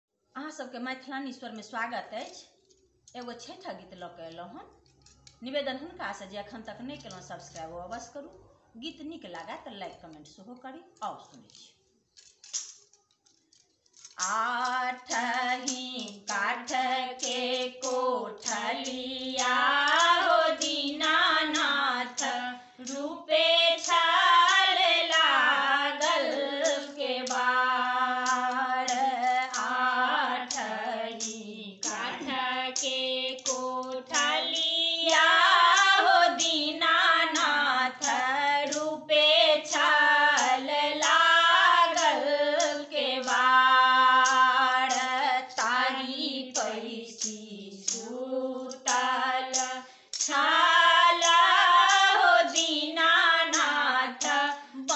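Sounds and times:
women singing folk song: 14.2s - 54.9s.

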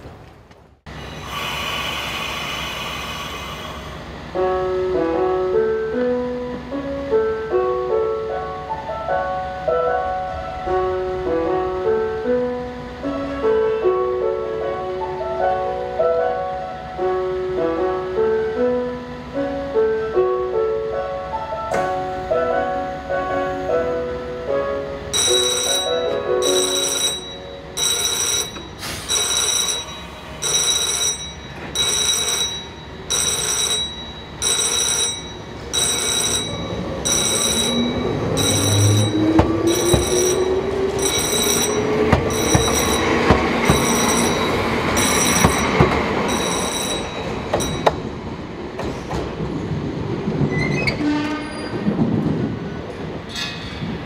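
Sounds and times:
railway crossing bell ringing: 25.1s - 48.2s
train wheels clicking on rail joints: 27.8s - 49.6s.

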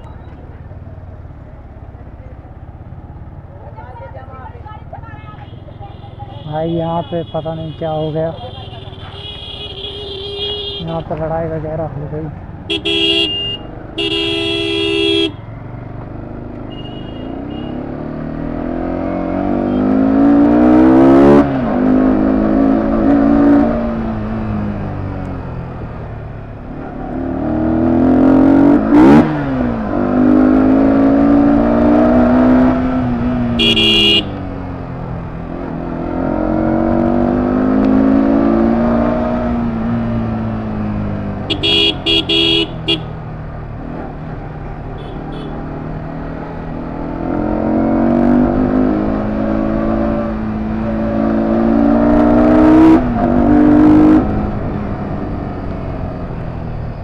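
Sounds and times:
horn honking: 5.1s - 11.2s, 12.7s - 15.5s, 16.6s - 17.8s, 33.5s - 34.5s, 41.4s - 43.2s, 44.9s - 45.7s
motorcycle engine accelerating: 15.6s - 57.0s
short horn beeps: 33.6s - 34.3s, 41.5s - 43.1s.

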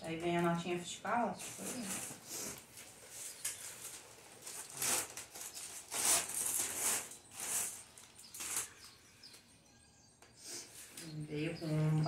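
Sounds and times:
plastic bag crinkling: 1.4s - 9.0s.

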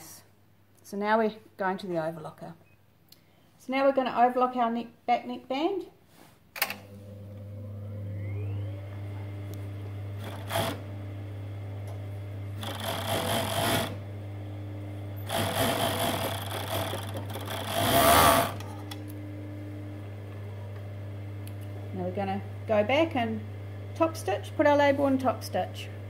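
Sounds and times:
overlocker motor humming: 6.8s - 26.0s
overlocker stitching: 10.2s - 10.9s, 12.6s - 14.0s, 15.2s - 19.0s.

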